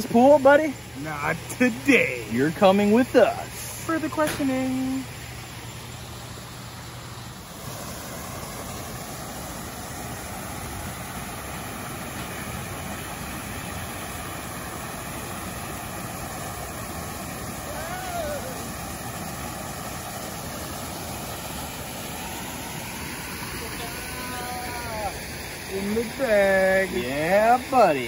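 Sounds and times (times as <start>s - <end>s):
waterfall rushing: 7.4s - 28.0s.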